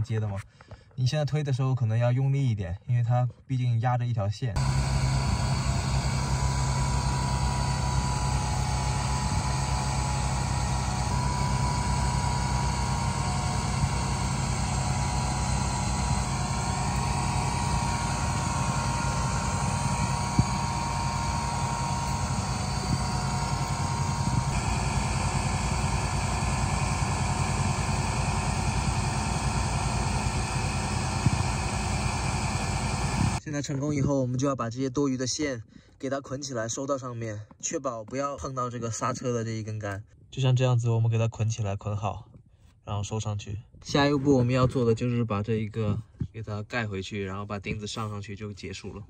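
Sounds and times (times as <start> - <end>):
car engine idling: 4.6 - 33.4.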